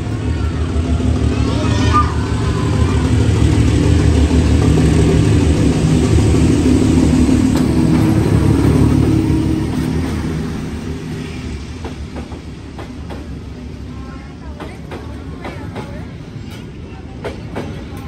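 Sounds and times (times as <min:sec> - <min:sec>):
diesel train engine running: 0:00.0 - 0:18.0.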